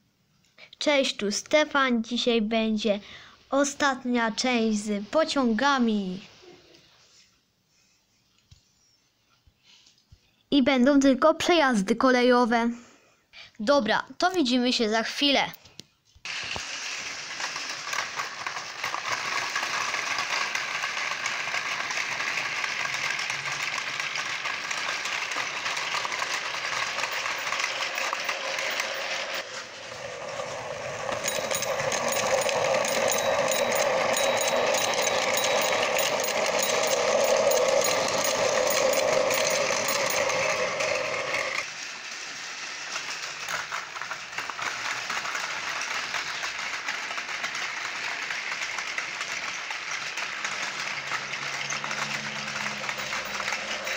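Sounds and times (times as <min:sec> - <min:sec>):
toy train motors whirring: 0:16.3 - 0:53.9
wheels rattling over track joints: 0:16.3 - 0:53.9.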